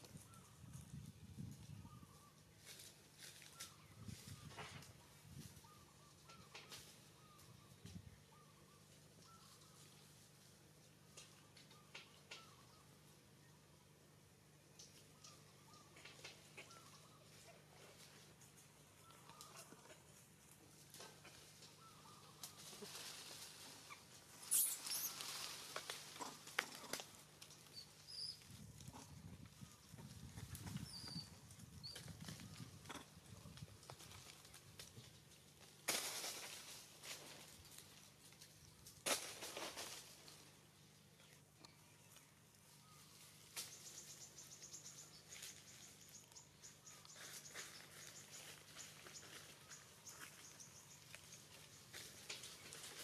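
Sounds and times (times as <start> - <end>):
twigs and leaves crackling: 2.5 - 8.0, 17.9 - 53.0.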